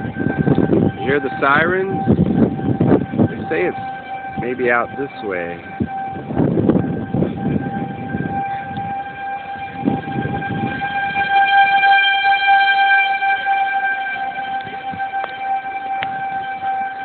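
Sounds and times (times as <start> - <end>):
low rumbling noise: 0.0 - 17.0
warning siren steady tone: 0.0 - 17.0.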